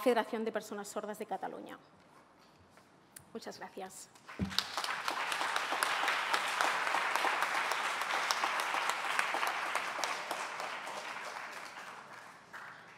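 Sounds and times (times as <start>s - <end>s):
audience applauding: 4.3s - 12.9s.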